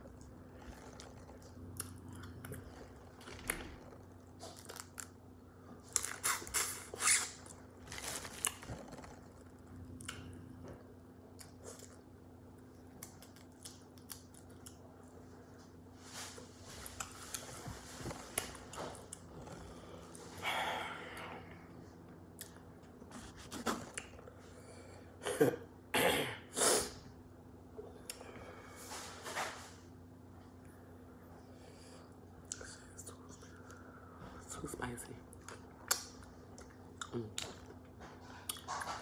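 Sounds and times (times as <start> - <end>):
chewing and mouth sounds: 0.0 - 15.2, 16.8 - 20.3, 35.3 - 39.0.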